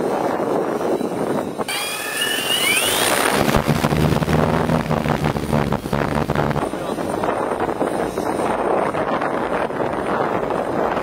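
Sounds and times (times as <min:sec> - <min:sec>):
propellers humming: 0:00.0 - 0:11.0
wind buffeting microphone: 0:00.0 - 0:11.0
drone motors whining: 0:00.6 - 0:08.2.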